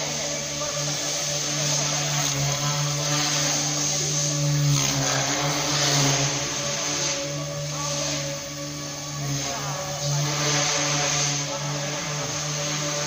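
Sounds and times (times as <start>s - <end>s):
model helicopter rotors whirring: 0.0s - 13.0s.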